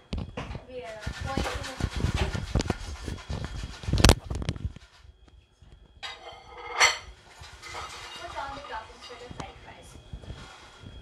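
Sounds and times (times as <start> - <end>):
objects clattering on stone countertop: 6.0 - 9.4.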